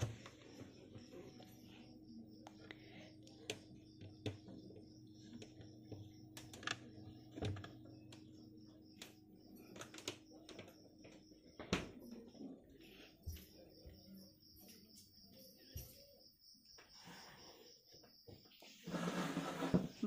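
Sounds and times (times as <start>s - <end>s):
small knocks and clicks: 3.3s - 12.0s.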